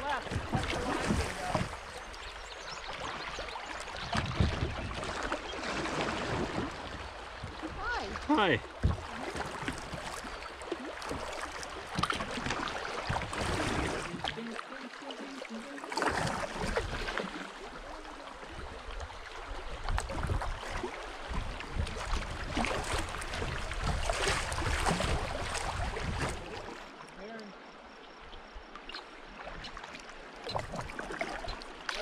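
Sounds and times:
paddle stroke splashes: 0:00.0 - 0:27.7, 0:28.8 - 0:32.0
river water rushing: 0:05.0 - 0:19.6.

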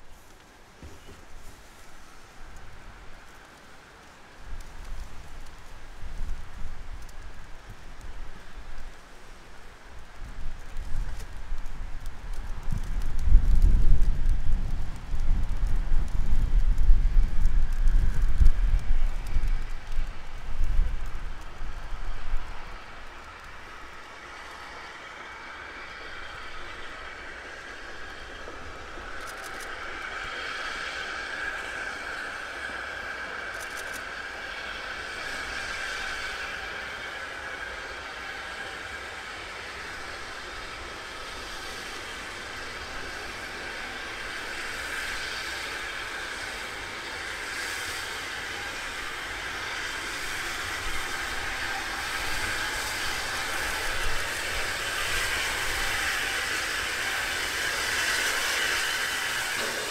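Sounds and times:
steam hissing: 0:00.0 - 0:59.9
steam locomotive approaching: 0:00.0 - 0:59.9.

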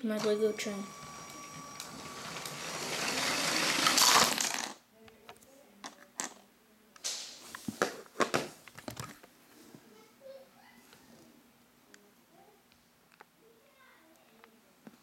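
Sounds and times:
toy train motor whir: 0:00.1 - 0:04.8.

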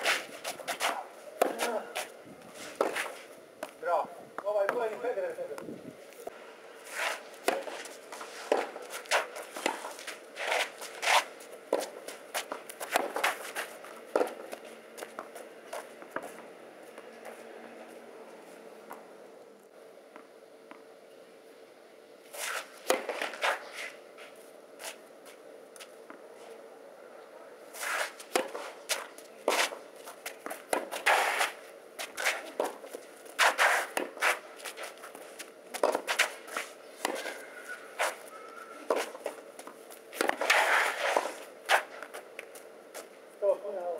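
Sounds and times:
racket striking tennis ball: 0:00.0 - 0:02.1, 0:06.9 - 0:14.6, 0:22.4 - 0:23.7, 0:27.8 - 0:29.8, 0:30.4 - 0:34.9, 0:35.8 - 0:38.3, 0:38.9 - 0:42.2
shoes scuffing on clay: 0:00.0 - 0:03.8, 0:04.6 - 0:16.4, 0:22.3 - 0:26.0, 0:27.7 - 0:43.1
tennis ball bouncing: 0:00.7 - 0:01.8, 0:14.1 - 0:16.4, 0:22.8 - 0:23.4, 0:30.4 - 0:34.3, 0:35.7 - 0:36.3.

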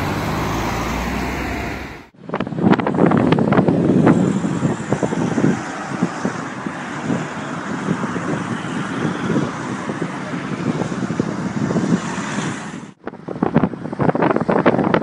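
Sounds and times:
car passing close by: 0:00.0 - 0:02.1
truck engine rumble: 0:00.0 - 0:15.0.

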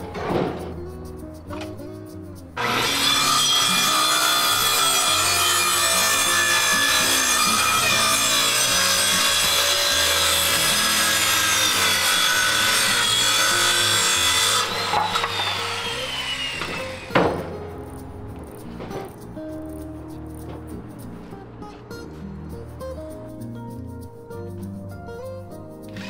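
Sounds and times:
saw blade winding down: 0:02.6 - 0:17.5
circular saw cutting wood: 0:02.6 - 0:17.7.

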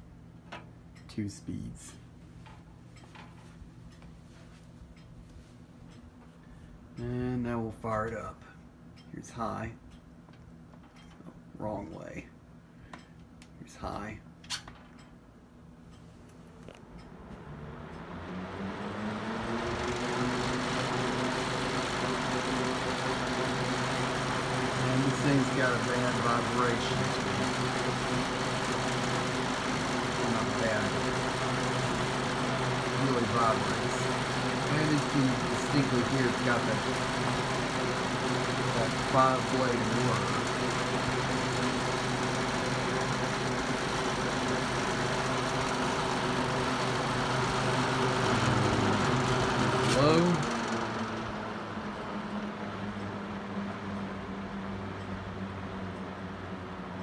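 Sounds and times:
box fan motor hum: 0:00.0 - 0:57.0
fan vibration: 0:00.0 - 0:57.0
rush of air from fan: 0:17.3 - 0:55.4.

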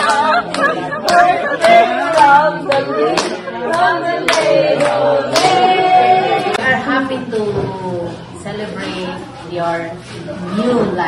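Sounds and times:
hands clapping: 0:00.0 - 0:05.6
people singing: 0:00.0 - 0:06.8.

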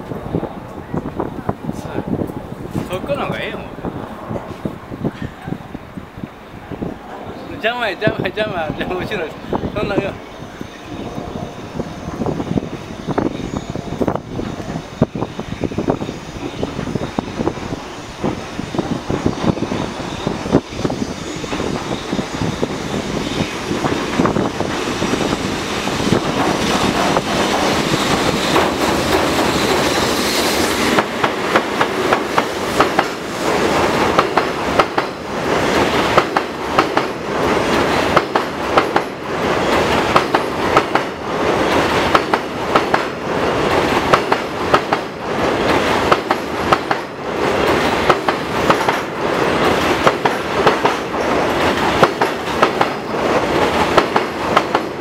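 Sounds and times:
freight train rumble: 0:00.0 - 0:55.0
train wheels clicking over rail joints: 0:15.9 - 0:55.0.

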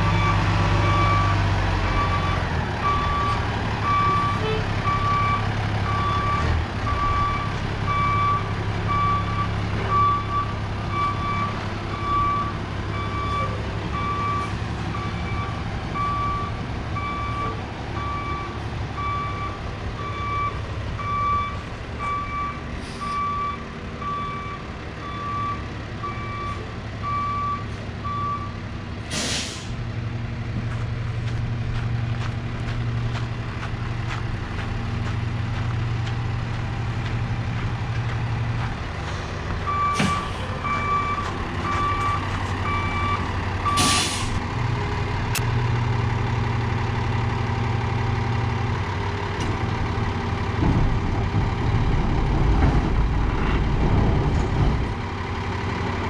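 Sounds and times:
diesel truck engine running: 0:00.0 - 0:56.0
air brake hisses: 0:29.1 - 0:29.8, 0:43.8 - 0:44.4
reverse alarm beeping: 0:39.7 - 0:44.0.

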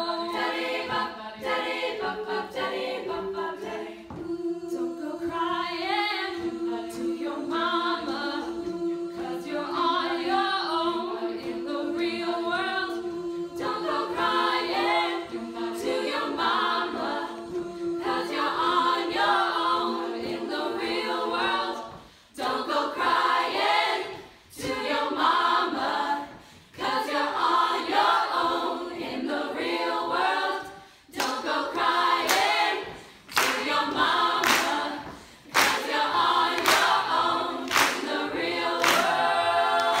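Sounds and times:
female a cappella group singing: 0:00.0 - 0:40.0
hand claps: 0:31.1 - 0:32.7, 0:33.3 - 0:40.0.

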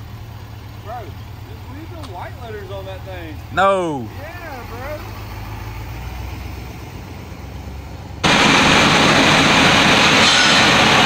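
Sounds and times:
truck engine idling: 0:00.0 - 0:11.0
loud steady rushing noise: 0:08.2 - 0:11.0.

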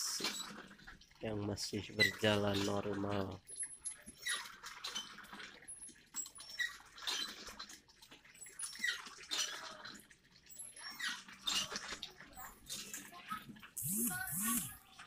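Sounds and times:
hand pump squeaking: 0:01.9 - 0:09.7.

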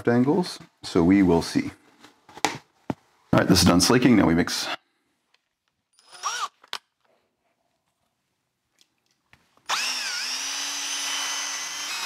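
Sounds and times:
electric drill mixing plaster: 0:06.0 - 0:06.6, 0:09.6 - 0:12.0.

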